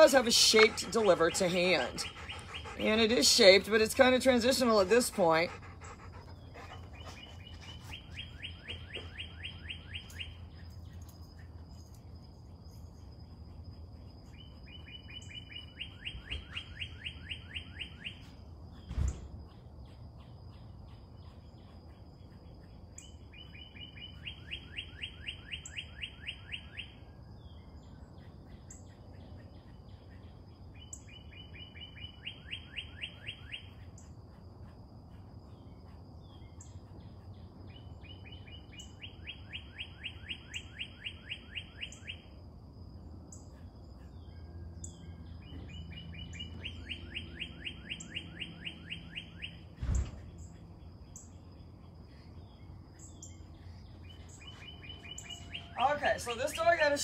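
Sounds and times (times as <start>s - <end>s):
songbird trilling: 14.3s - 18.3s, 37.7s - 42.3s, 44.1s - 49.7s, 52.4s - 57.0s.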